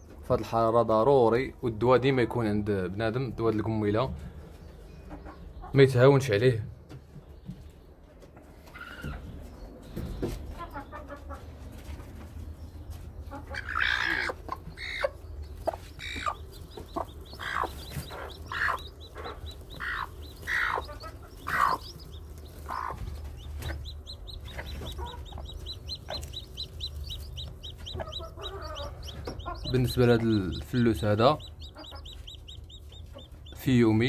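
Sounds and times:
hen clucking: 0:05.0 - 0:05.9, 0:08.4 - 0:09.4, 0:10.2 - 0:12.1, 0:12.8 - 0:34.0
chick peeping high-pitched: 0:08.6 - 0:09.3, 0:13.2 - 0:34.0.

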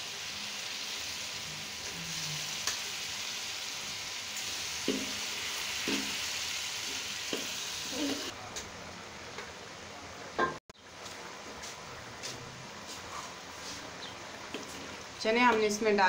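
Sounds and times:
chickpeas sizzling in oil: 0:00.0 - 0:08.4, 0:14.2 - 0:15.9.

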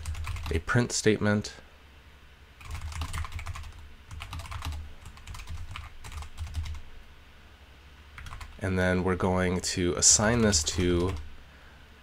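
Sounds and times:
typing on computer keyboard: 0:00.0 - 0:00.6, 0:02.6 - 0:06.8, 0:08.2 - 0:08.6, 0:10.2 - 0:11.3.

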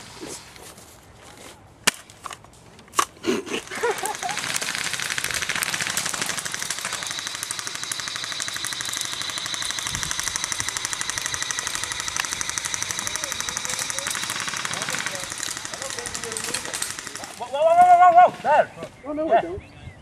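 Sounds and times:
airsoft gun automatic fire: 0:03.6 - 0:18.0.

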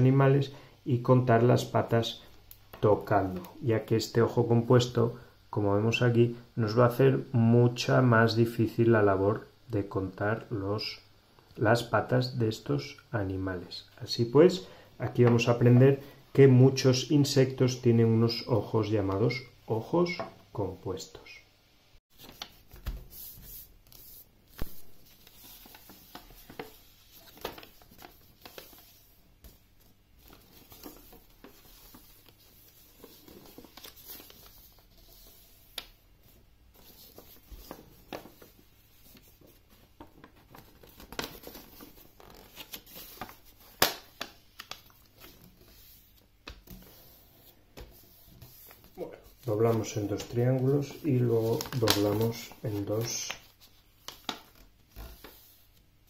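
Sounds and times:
paper rustling and creasing: 0:22.1 - 0:55.8.

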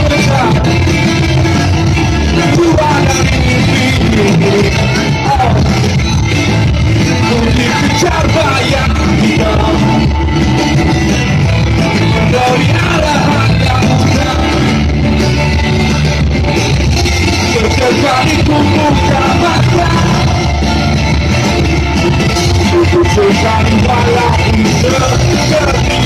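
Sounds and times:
person singing lead vocal: 0:00.0 - 0:16.2, 0:17.0 - 0:26.0
drums: 0:00.0 - 0:26.0
electric guitars: 0:00.0 - 0:26.0.

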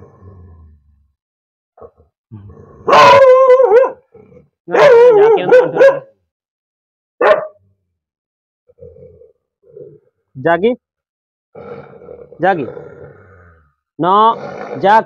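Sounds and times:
dog barking aggressively: 0:02.9 - 0:04.1, 0:04.7 - 0:06.1, 0:07.2 - 0:07.6.

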